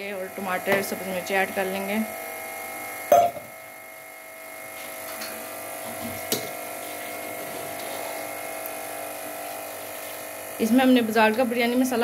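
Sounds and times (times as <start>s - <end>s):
electrical buzzing hum: 0.0s - 12.0s
metal clink on pot: 3.1s - 3.4s.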